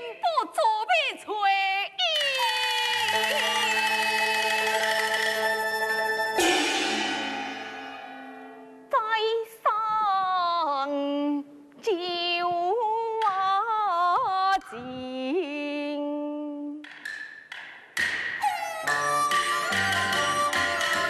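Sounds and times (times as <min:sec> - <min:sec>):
instrumental accompaniment: 0:02.4 - 0:08.9, 0:17.4 - 0:21.0
woman singing opera aria: 0:09.0 - 0:16.8.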